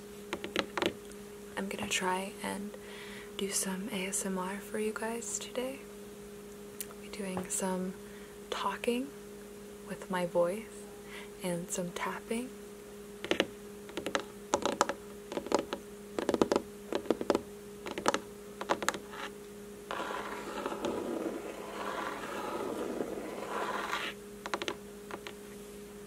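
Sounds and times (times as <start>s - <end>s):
steady low hum: 0.0s - 26.0s
fingernail tapping: 13.3s - 19.1s, 24.4s - 25.4s
fingernail scratching: 13.3s - 19.3s, 19.9s - 25.3s.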